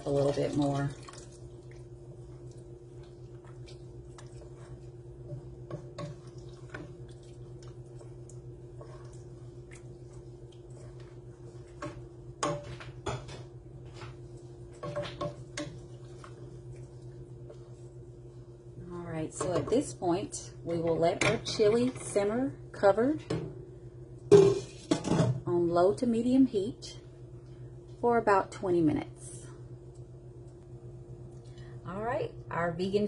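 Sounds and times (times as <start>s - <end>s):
steady low hum: 0.0s - 33.0s
wooden spoon stirring chili: 1.2s - 18.6s.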